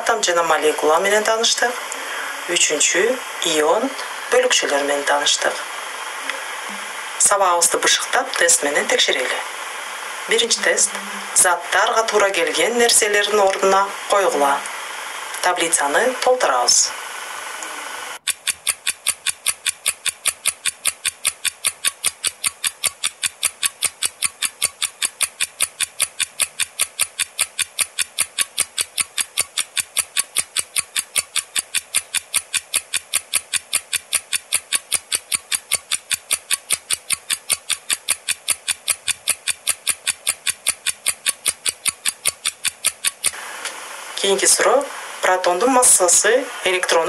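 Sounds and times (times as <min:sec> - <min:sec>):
clock ticking: 0:18.2 - 0:43.4.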